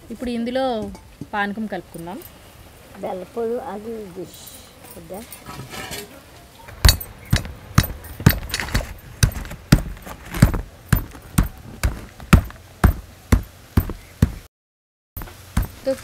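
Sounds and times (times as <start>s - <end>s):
stone pestle pounding in mortar: 6.8s - 14.5s, 15.2s - 16.0s.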